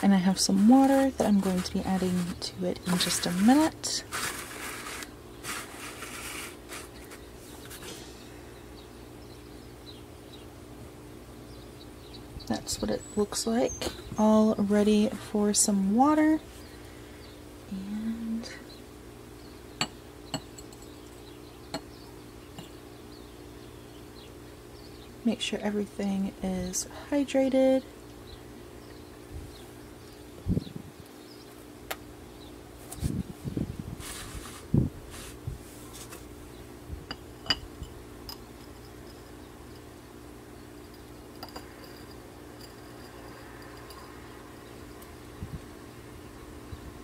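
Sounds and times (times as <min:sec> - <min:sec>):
glass clinking on glass: 0:37.1 - 0:39.3, 0:41.3 - 0:44.1
water trickling into glass jar: 0:40.9 - 0:44.3.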